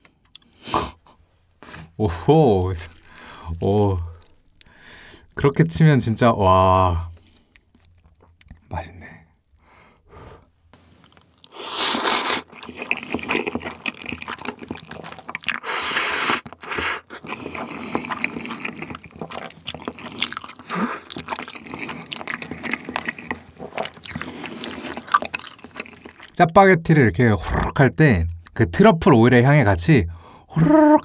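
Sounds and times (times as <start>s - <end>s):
wet chewing with mouth clicks: 1.7s - 5.6s, 7.1s - 8.7s, 11.0s - 26.4s
noodle slurps: 2.8s - 4.8s, 11.5s - 26.4s.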